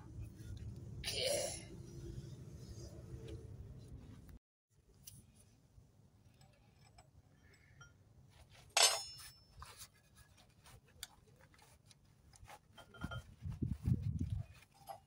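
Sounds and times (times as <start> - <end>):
sharp metallic clink: 8.8 - 9.6.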